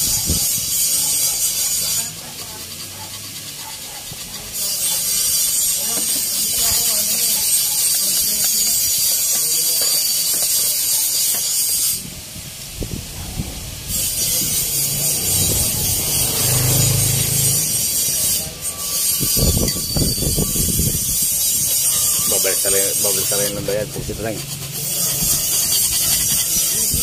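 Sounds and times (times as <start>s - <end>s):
hand tool scraping metal: 0.0s - 12.0s, 13.9s - 27.0s.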